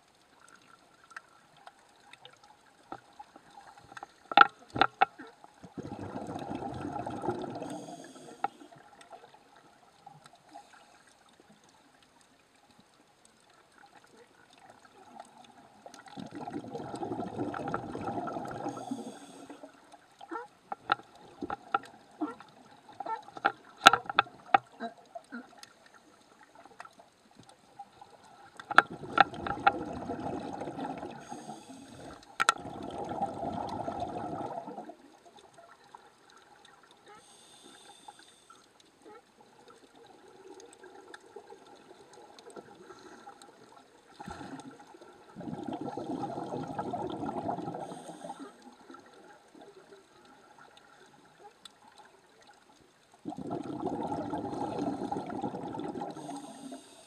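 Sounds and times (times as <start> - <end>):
underwater breath bubbles gurgling: 1.9 - 11.5, 13.8 - 26.9, 27.9 - 52.6, 53.2 - 57.0
sharp clicks and knocks: 4.3 - 5.1, 23.4 - 24.7.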